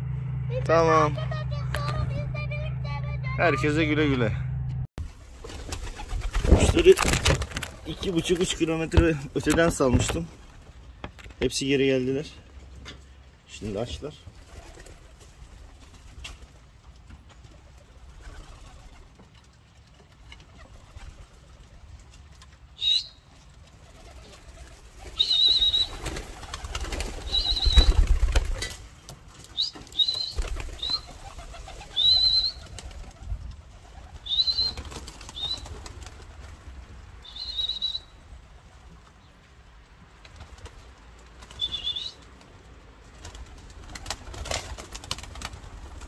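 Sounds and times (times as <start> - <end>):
pigeon wings flapping: 5.1 - 11.4, 13.7 - 22.6, 23.3 - 37.5, 40.1 - 46.0.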